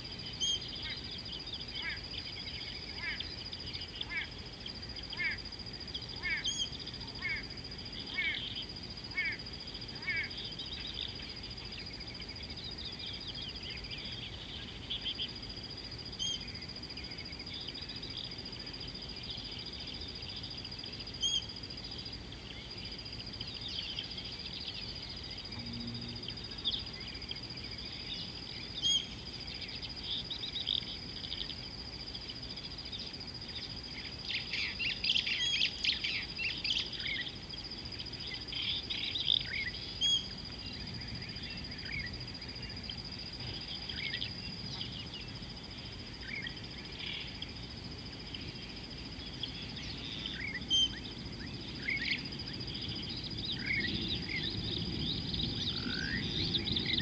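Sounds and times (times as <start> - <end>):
steady high-pitched whine: 0.0 - 57.0
birds chirping and calling: 6.0 - 9.4.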